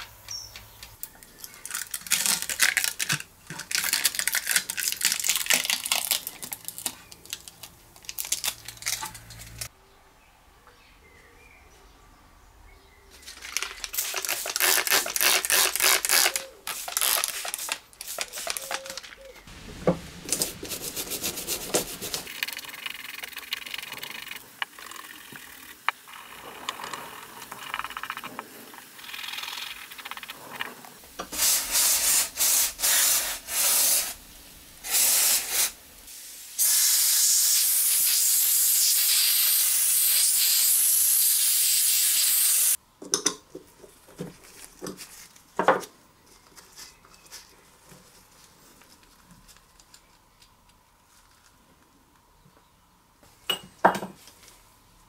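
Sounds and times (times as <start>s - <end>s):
spray can hissing: 13.9s - 19.0s, 20.0s - 22.5s, 31.2s - 34.2s, 34.8s - 42.8s
stiff brush scrubbing metal: 20.3s - 22.4s.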